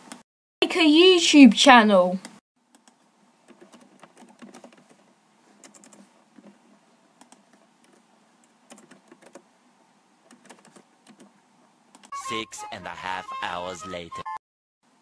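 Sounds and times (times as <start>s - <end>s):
keyboard typing: 2.2s - 6.6s, 7.2s - 9.5s, 10.2s - 11.3s.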